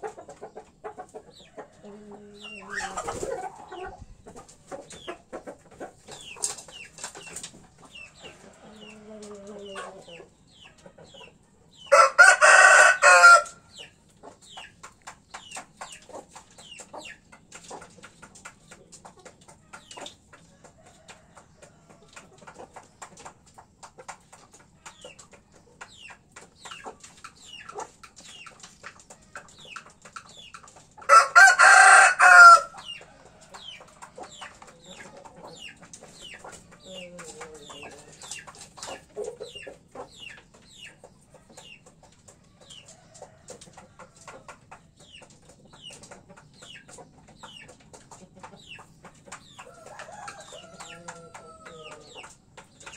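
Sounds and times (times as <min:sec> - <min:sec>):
hens clucking: 0:00.0 - 0:52.9
rooster crowing: 0:11.9 - 0:13.6, 0:31.1 - 0:32.7, 0:49.7 - 0:51.9.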